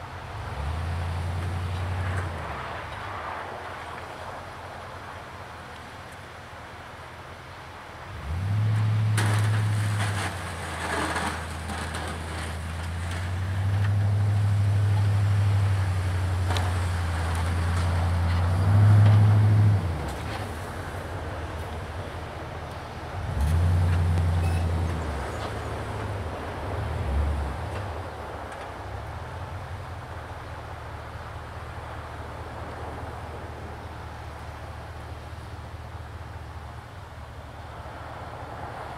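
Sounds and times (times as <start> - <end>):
diesel truck engine under load: 8.1 - 29.9.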